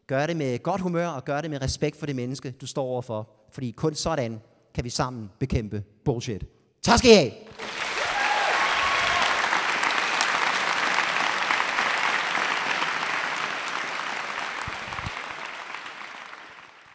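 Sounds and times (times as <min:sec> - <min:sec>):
audience applauding: 0:07.5 - 0:16.9.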